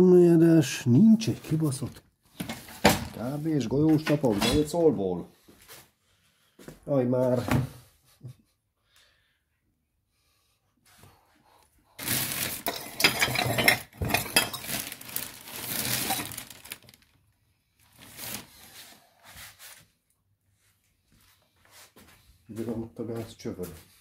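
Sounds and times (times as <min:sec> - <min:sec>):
metal parts clattering: 0:12.4 - 0:16.6.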